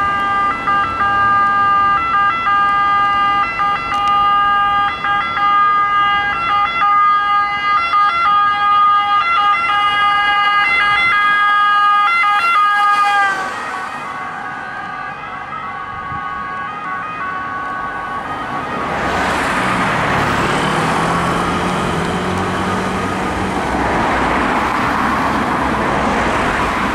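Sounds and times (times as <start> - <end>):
two-tone ambulance siren: 0.0 - 23.4
road traffic noise: 0.0 - 26.9
passing vehicle engine: 10.1 - 26.9.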